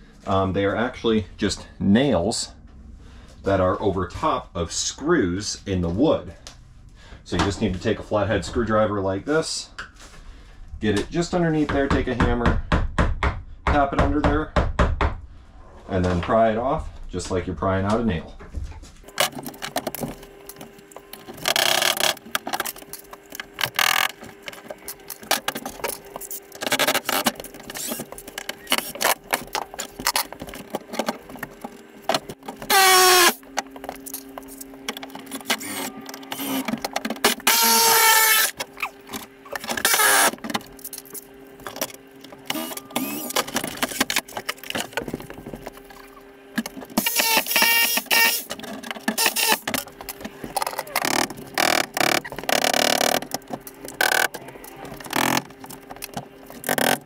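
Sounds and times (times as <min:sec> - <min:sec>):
steady low hum: 0:00.0 - 0:12.8
cordless power tool bursts: 0:32.7 - 0:33.4, 0:37.3 - 0:38.6, 0:39.8 - 0:40.3, 0:47.0 - 0:48.5.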